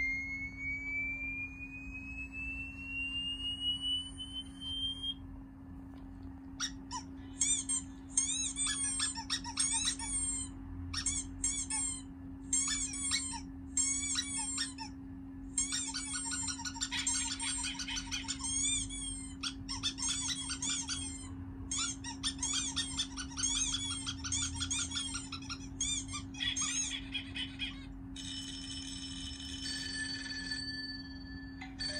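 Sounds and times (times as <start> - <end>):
steady low hum: 0.0 - 31.9
bird chirping from phone speaker: 3.5 - 5.2, 15.6 - 29.6.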